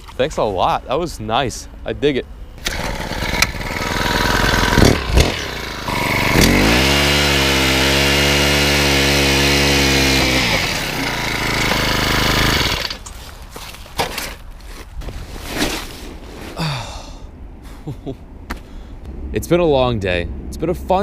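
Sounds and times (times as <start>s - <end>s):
ice auger motor drilling: 2.6s - 13.0s.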